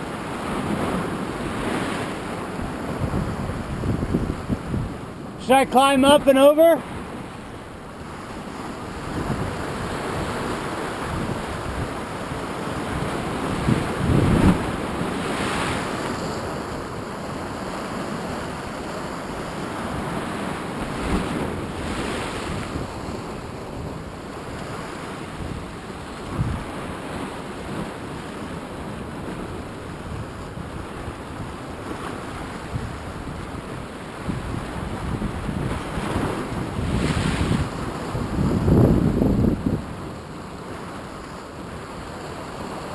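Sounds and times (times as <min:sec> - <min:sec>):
wind buffeting microphone: 0:02.5 - 0:05.3, 0:06.9 - 0:17.7, 0:19.8 - 0:27.8, 0:29.1 - 0:40.3
surf breaking against rocks: 0:08.2 - 0:30.2, 0:33.7 - 0:40.1.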